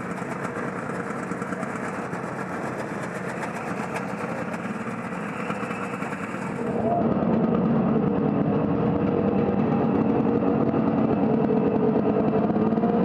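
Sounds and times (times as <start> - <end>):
snowmobile engine running: 0.0 - 13.0.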